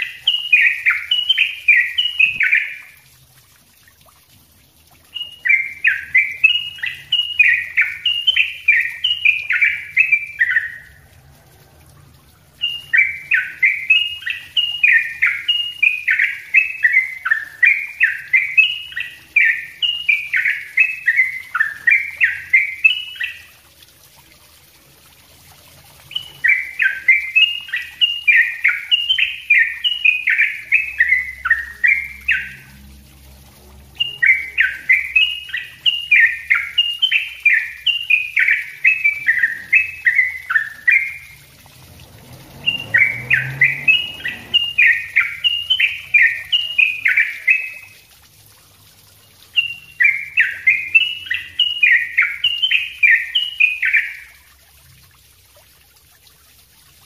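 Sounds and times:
bird singing rapid song: 0:00.0 - 0:03.0, 0:05.1 - 0:11.0, 0:12.6 - 0:23.6, 0:26.0 - 0:32.7, 0:33.9 - 0:41.5, 0:42.5 - 0:48.0, 0:49.3 - 0:54.4.

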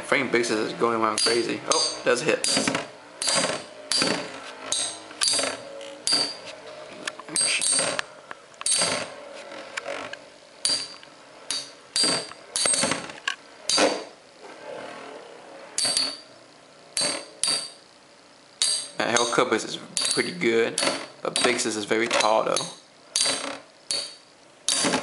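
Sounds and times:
spinning tops clacking together: 0:01.2 - 0:06.4, 0:07.3 - 0:08.0.

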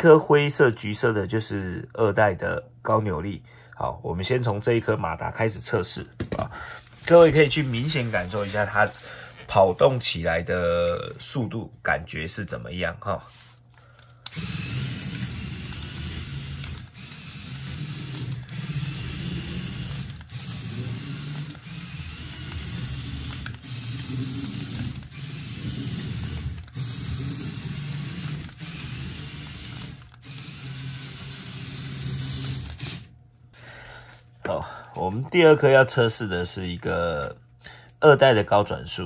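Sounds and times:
motor whirring with gear chatter: 0:14.2 - 0:33.2.

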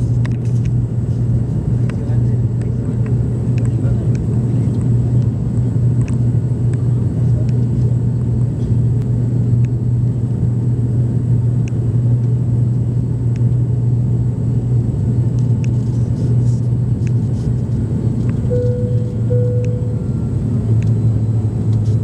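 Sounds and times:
airplane engine hum: 0:00.0 - 0:22.0
airflow noise: 0:15.6 - 0:22.0
short steady tone: 0:18.4 - 0:21.2.

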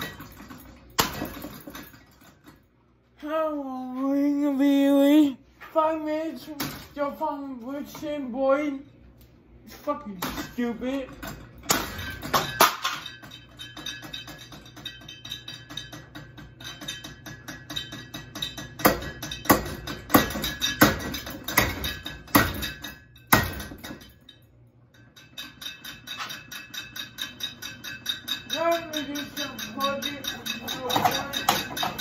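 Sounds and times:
hammer clanking on metal: 0:10.1 - 0:24.4, 0:25.0 - 0:32.0.

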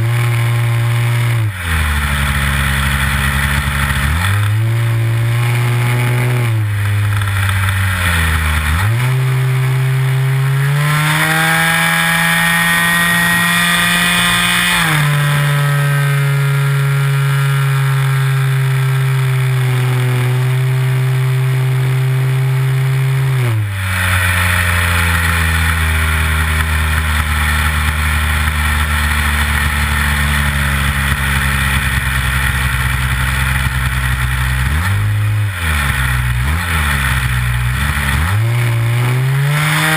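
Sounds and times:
model airplane engine running: 0:23.9 - 0:38.1.

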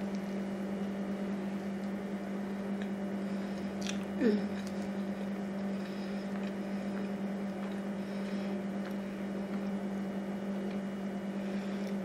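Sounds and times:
steady low hum: 0:00.0 - 0:12.0
person chewing: 0:02.6 - 0:12.0.

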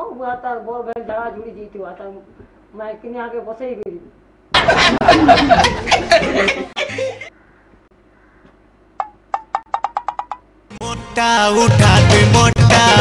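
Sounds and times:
person laughing: 0:04.6 - 0:07.3.

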